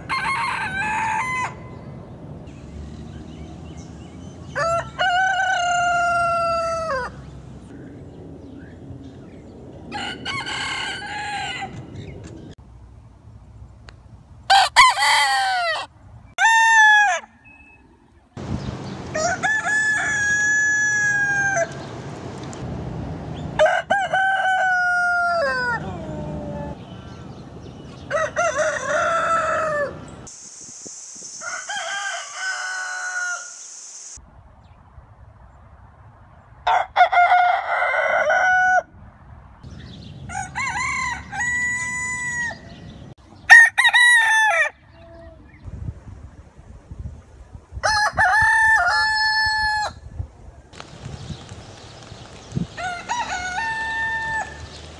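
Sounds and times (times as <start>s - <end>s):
roosters crowing: 0.0s - 1.9s, 4.4s - 7.3s, 9.9s - 12.1s, 14.5s - 17.5s, 18.8s - 21.9s, 23.6s - 26.8s, 28.0s - 30.3s, 31.4s - 33.7s, 36.7s - 38.9s, 40.2s - 45.2s, 47.8s - 50.0s, 52.6s - 54.9s
hiss: 30.3s - 31.8s, 33.3s - 34.2s.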